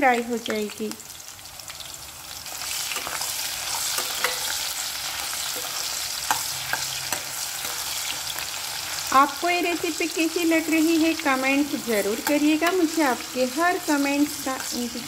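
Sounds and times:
onions sizzling in hot oil: 0.0 - 15.0
metal spoon clicking against pan: 2.9 - 4.6, 5.6 - 7.9, 12.2 - 13.0.

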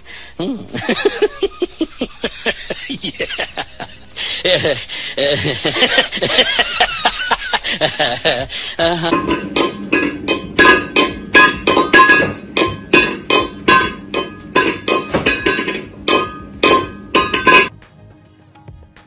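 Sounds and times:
metal bowl clanking on tile floor: 9.0 - 17.7.

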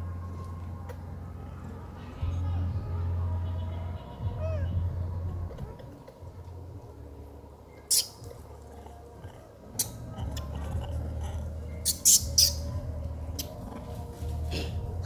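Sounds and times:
steady low rumble: 0.0 - 11.9, 12.5 - 15.0
high animal chirps: 7.9 - 8.2, 11.8 - 12.7.

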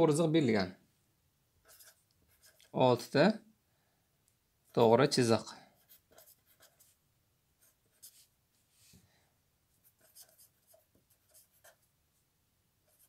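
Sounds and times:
marker scratching on paper: 1.6 - 2.8, 5.8 - 7.0, 7.6 - 8.3, 9.8 - 11.9.

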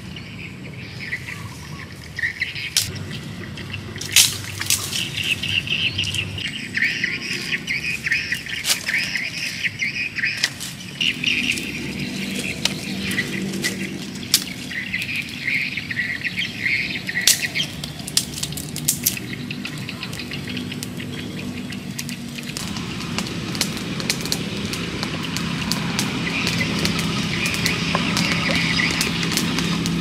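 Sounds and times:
bird chirps: 0.0 - 22.8
steady low hum: 0.0 - 30.0
twigs clicking and snapping: 2.6 - 3.0, 3.8 - 30.0.

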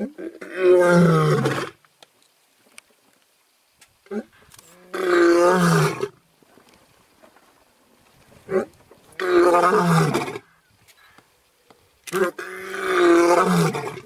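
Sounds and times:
lion roaring: 12.1 - 14.0.

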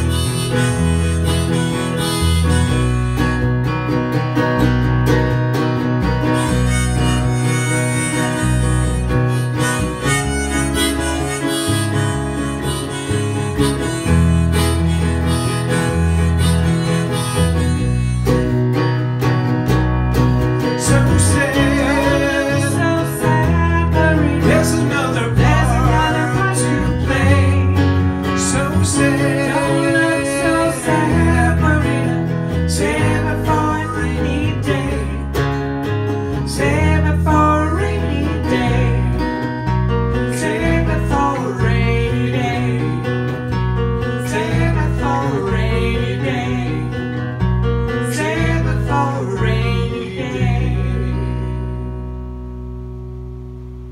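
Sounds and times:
harmonica melody: 0.0 - 4.2, 6.0 - 19.3, 20.1 - 35.0
strummed acoustic guitar: 0.0 - 53.9.

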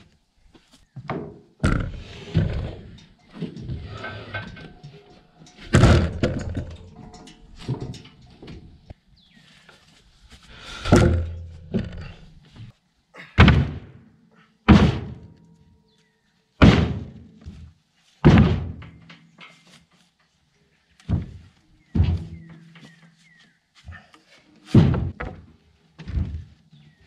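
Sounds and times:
wooden beam scraping: 1.2 - 9.0, 10.5 - 12.8
wooden knocks: 5.6 - 8.7, 10.9 - 12.2, 24.8 - 26.5
wooden beam thunk: 5.7 - 7.0, 10.9 - 12.3, 13.4 - 14.0, 14.7 - 15.4, 16.6 - 17.6, 18.2 - 19.0, 21.1 - 22.8, 24.7 - 26.5.

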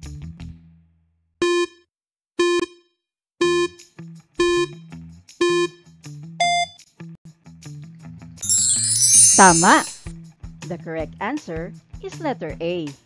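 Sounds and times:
countdown timer beeps: 3.4 - 3.8, 4.4 - 4.8, 5.4 - 5.8, 6.4 - 6.7
higher-pitched beep: 8.4 - 10.1.

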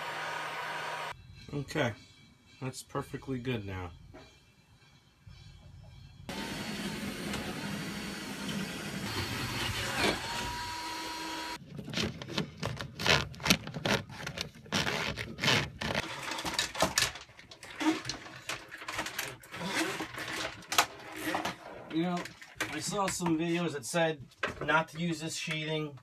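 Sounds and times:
hands handling wires and cables: 11.6 - 23.5.

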